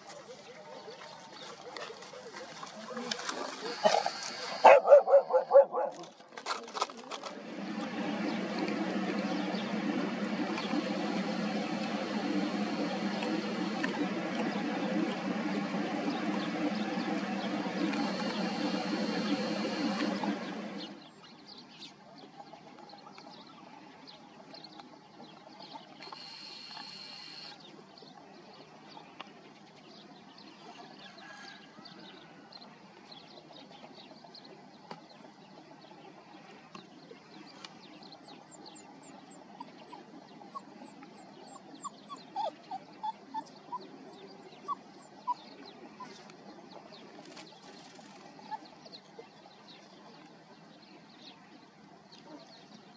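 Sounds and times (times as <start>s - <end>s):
loud steady noise: 7.2s - 21.1s, 26.0s - 27.6s.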